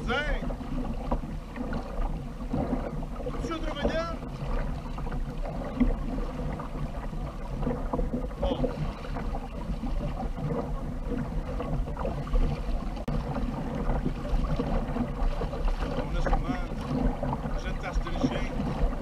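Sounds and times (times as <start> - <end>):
water splashing against hull: 0.0 - 19.0
wind rumbling on microphone: 0.0 - 19.0.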